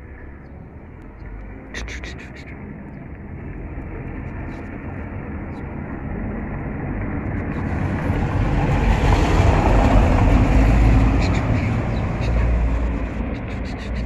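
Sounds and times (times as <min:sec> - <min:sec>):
vehicle rumble approaching: 0:00.0 - 0:14.0
tongue clicks: 0:01.7 - 0:02.6.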